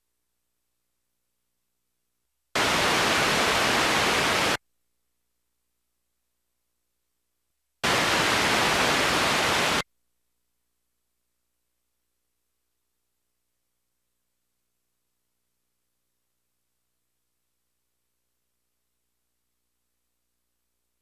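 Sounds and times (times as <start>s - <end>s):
loud white-noise static bursts: 2.6s - 4.6s, 7.8s - 9.8s.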